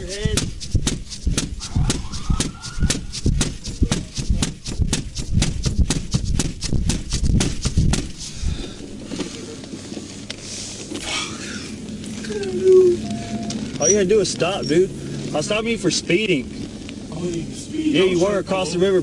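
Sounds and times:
fast run of sharp knocks: 0:00.0 - 0:08.8
short rising wail: 0:01.6 - 0:03.1.

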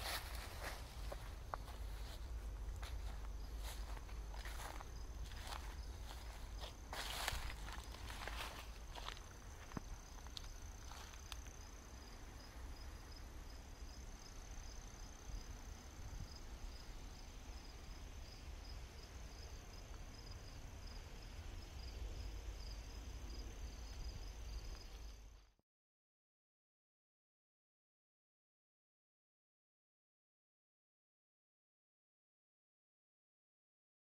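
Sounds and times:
crickets chirping: 0:00.0 - 0:25.5.

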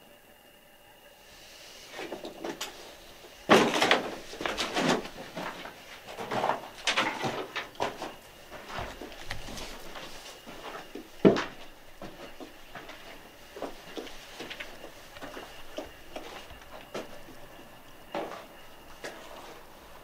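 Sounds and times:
footsteps on gritty debris: 0:03.5 - 0:17.4.

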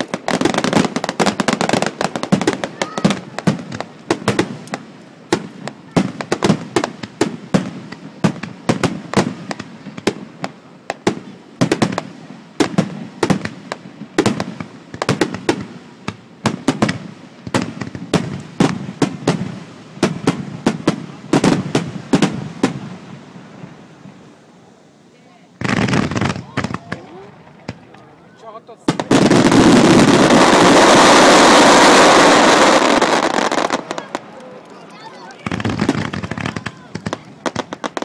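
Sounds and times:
firework shells bursting: 0:28.9 - 0:38.0.

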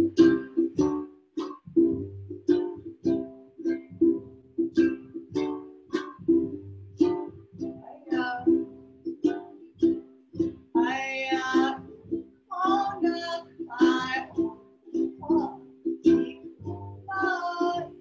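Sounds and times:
ukulele strumming: 0:00.0 - 0:18.0
upright bass plucked: 0:00.0 - 0:18.0
woman singing: 0:07.8 - 0:08.7, 0:10.8 - 0:14.6, 0:15.2 - 0:18.0.

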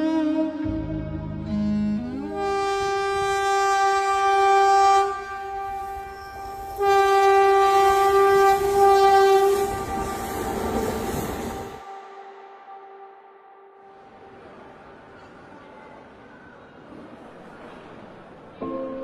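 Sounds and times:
train horn blasts: 0:00.0 - 0:14.0.

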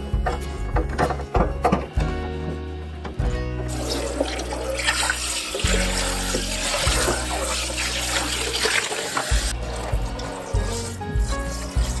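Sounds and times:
background music: 0:00.0 - 0:12.0
faucet water splashing on plastic: 0:03.7 - 0:09.5.

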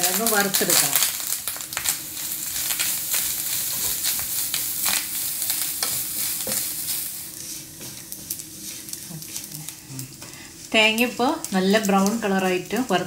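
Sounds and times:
coconut sizzling in oil: 0:00.0 - 0:13.0
wooden spatula scraping a pan: 0:02.8 - 0:10.8.

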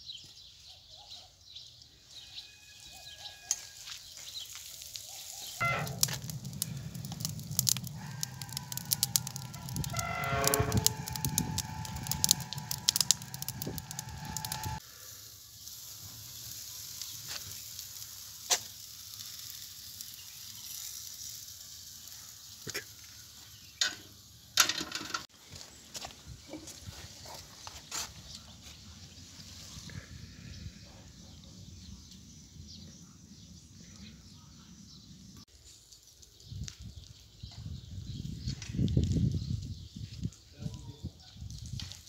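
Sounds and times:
wood fire crackling: 0:03.5 - 0:24.2
wavering animal call: 0:07.9 - 0:14.8.

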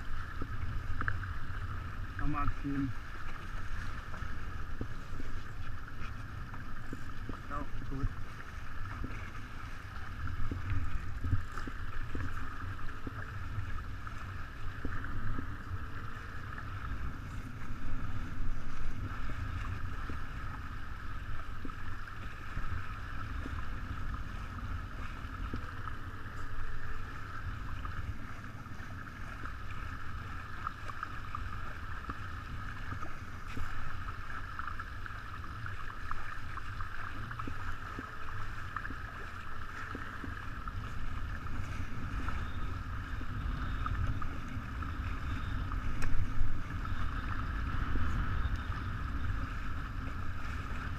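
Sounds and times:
water rushing along hull: 0:00.0 - 0:50.9
wind buffeting microphone: 0:37.1 - 0:50.9.

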